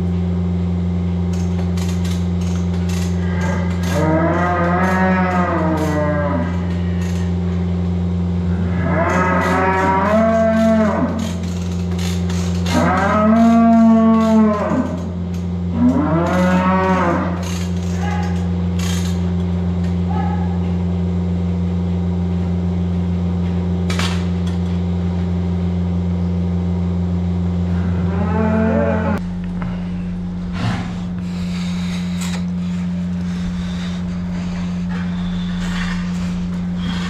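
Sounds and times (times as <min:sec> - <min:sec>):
steady low hum: 0:00.0 - 0:37.0
cows mooing: 0:03.0 - 0:07.4, 0:08.4 - 0:18.5, 0:27.7 - 0:37.0.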